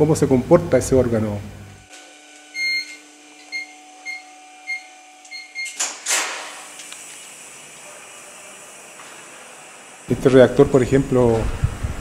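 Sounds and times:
keypad beeps: 2.6s - 5.8s
door opening with air rush: 5.6s - 12.0s.

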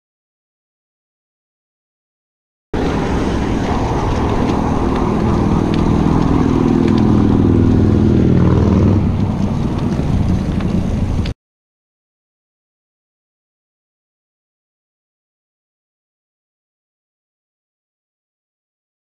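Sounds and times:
vehicle passing by: 2.8s - 11.3s
motor traffic rumble: 2.8s - 11.4s.

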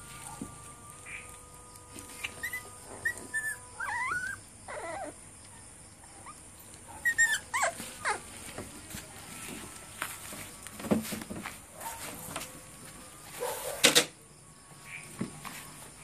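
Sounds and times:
puppy whimpering and squealing: 2.2s - 5.2s, 7.0s - 8.3s.

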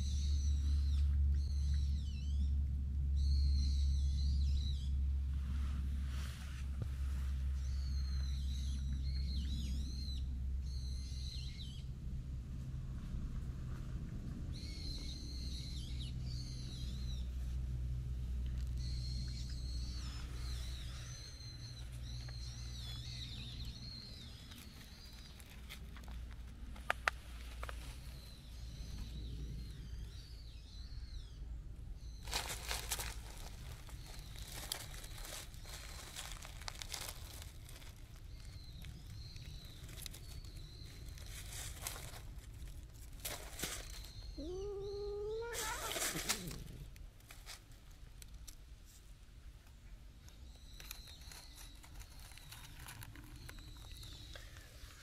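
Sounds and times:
bird warbling song: 0.0s - 5.0s, 7.5s - 11.9s, 14.5s - 17.4s, 18.6s - 25.9s, 26.9s - 42.2s, 43.2s - 46.9s, 50.2s - 55.0s
low rumble: 0.0s - 47.3s
rustling: 20.1s - 29.2s, 32.2s - 44.6s, 45.4s - 49.2s, 50.8s - 55.0s.

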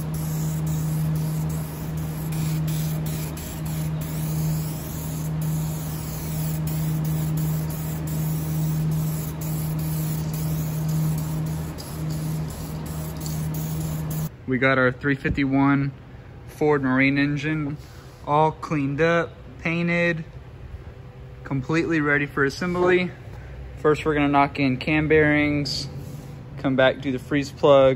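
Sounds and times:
aerosol spray hissing: 0.0s - 14.3s
low hum: 0.0s - 14.3s.

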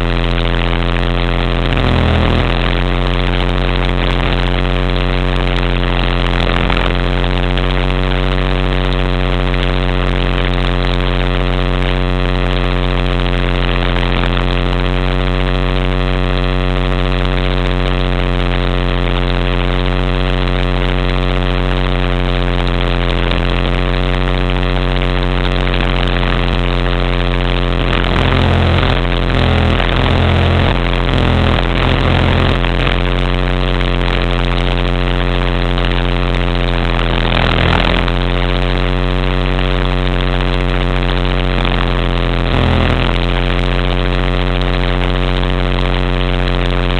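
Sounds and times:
low pulsing throbbing: 0.0s - 7.2s, 25.4s - 35.0s, 35.6s - 38.6s, 41.8s - 43.5s
rc helicopter rotor drone: 0.0s - 8.4s, 22.8s - 38.5s, 41.8s - 43.5s.

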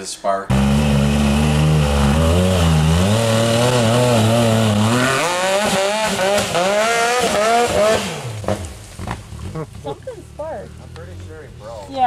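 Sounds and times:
engine revving hard: 0.5s - 9.7s.

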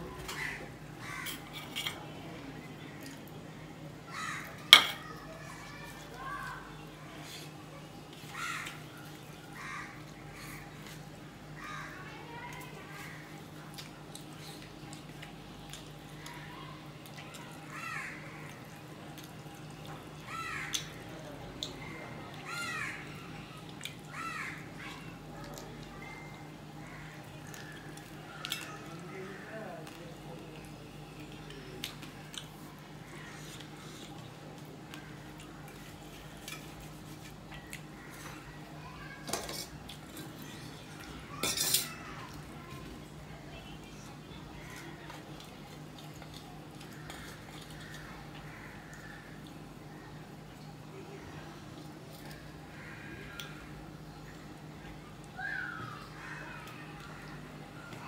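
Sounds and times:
crow cawing: 0.2s - 1.6s, 4.1s - 5.0s, 8.3s - 8.9s, 9.5s - 10.7s, 11.6s - 12.1s, 17.7s - 18.5s, 20.3s - 21.0s, 22.4s - 23.2s, 24.1s - 25.0s, 47.0s - 50.1s, 52.7s - 53.6s, 55.4s - 57.3s
steel tableware clattering: 4.8s - 5.0s, 39.3s - 39.8s, 41.4s - 42.0s
steel bowl clinking: 41.4s - 41.9s.

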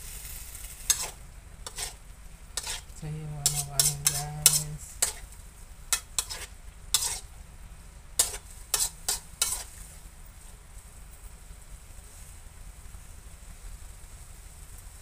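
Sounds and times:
ladle scraping metal wok: 0.0s - 2.0s, 2.6s - 7.3s, 8.2s - 9.8s
vegetables sizzling: 0.0s - 10.1s.

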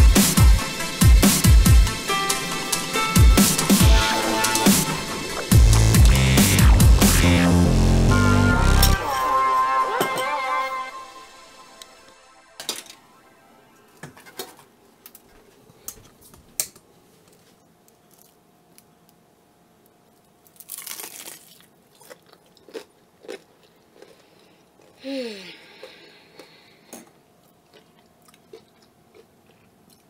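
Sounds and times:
crunching and chewing fried food: 17.9s - 19.1s, 19.8s - 30.0s.

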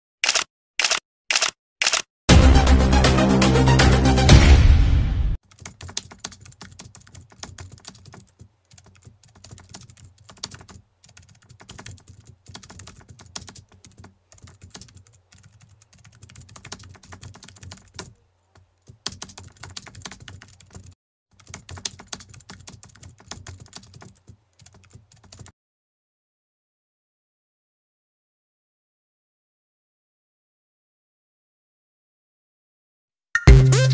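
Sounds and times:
keyboard typing: 0.2s - 2.1s, 5.4s - 25.5s.

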